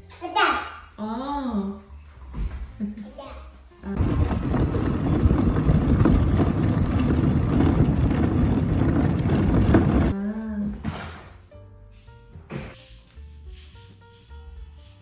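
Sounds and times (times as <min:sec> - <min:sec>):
plastic wheels rattling on asphalt: 0:04.0 - 0:10.2.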